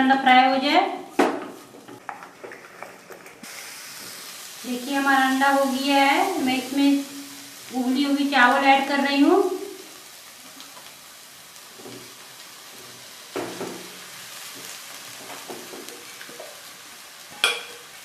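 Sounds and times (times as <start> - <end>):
egg sizzling in a pan: 1.1 - 18.0.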